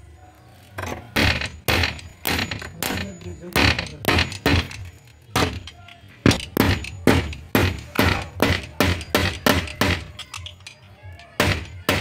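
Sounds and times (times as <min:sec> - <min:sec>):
metallic clink: 0:08.2 - 0:11.9.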